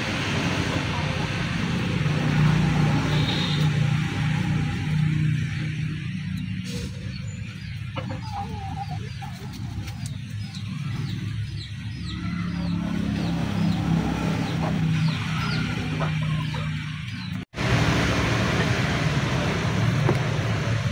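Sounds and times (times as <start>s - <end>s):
chickens clucking: 0.0s - 17.5s.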